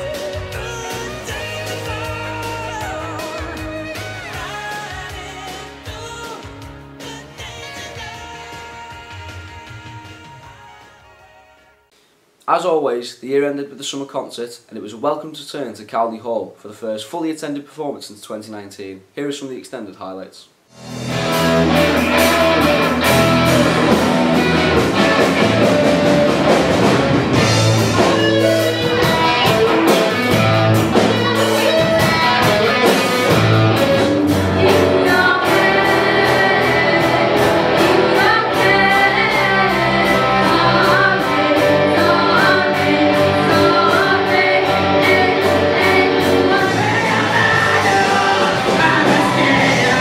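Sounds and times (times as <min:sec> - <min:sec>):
amplified electric guitars: 0:00.0 - 0:10.9, 0:20.8 - 0:50.0
drum kit: 0:00.0 - 0:11.1, 0:20.7 - 0:50.0
sung vocals: 0:00.0 - 0:11.2, 0:28.0 - 0:50.0.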